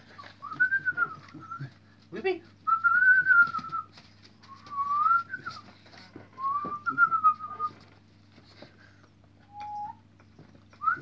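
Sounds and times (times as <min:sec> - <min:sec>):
person whistling: 0:04.5 - 0:05.6, 0:09.5 - 0:10.0.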